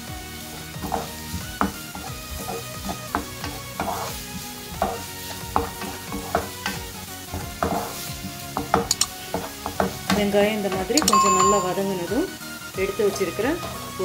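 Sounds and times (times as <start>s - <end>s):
onion sizzling in hot oil: 0.0s - 14.0s
spatula scraping pan: 0.0s - 14.0s.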